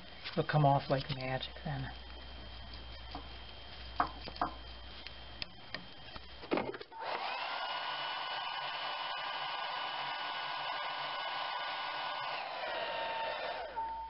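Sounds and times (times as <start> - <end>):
hair dryer blowing: 7.0 - 13.9.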